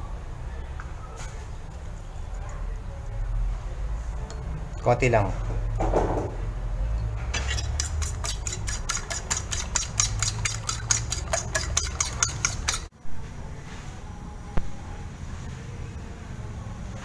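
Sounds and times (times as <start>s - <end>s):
utensil clicking on ceramic plate: 7.4s - 12.9s.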